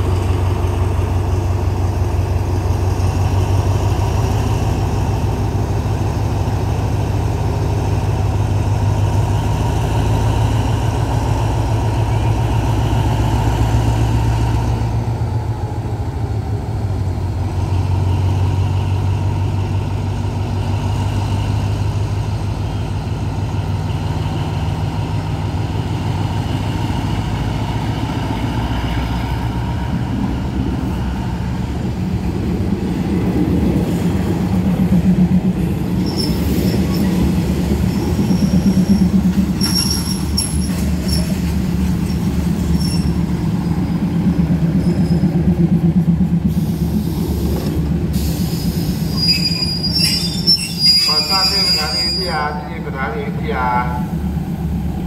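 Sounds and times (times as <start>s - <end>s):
diesel locomotive engine drone: 0.0s - 55.0s
passing train rumble: 0.0s - 55.0s
train wheel squeal: 36.0s - 37.2s, 37.8s - 43.8s, 44.7s - 45.4s, 48.4s - 52.6s.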